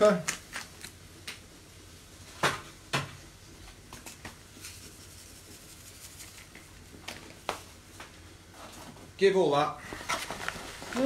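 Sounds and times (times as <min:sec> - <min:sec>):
salt and pepper pattering: 0:03.9 - 0:07.6
shaker clicks: 0:04.0 - 0:06.8.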